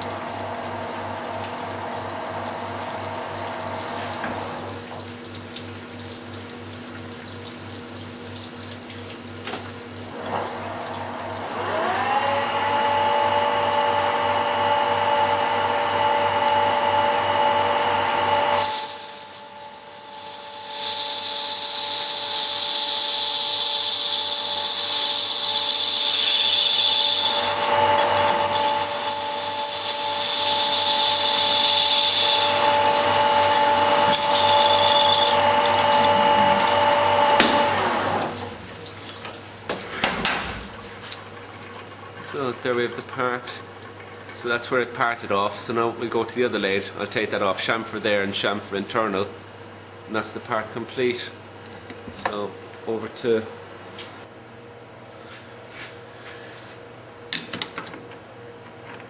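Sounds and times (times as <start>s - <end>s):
coolant splashing: 0.1s - 11.6s, 32.5s - 44.5s
lathe whine: 10.2s - 38.6s
high-pitched ringing of cutting tool: 18.4s - 37.7s.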